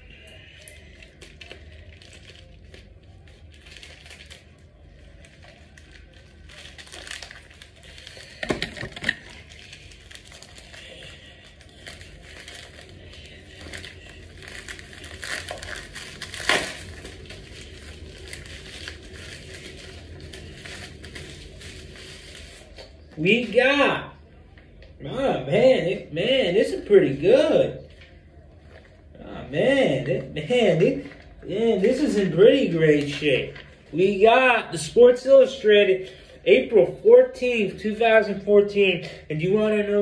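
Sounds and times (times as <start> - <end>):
plastic packaging crinkling: 0.6 - 23.6.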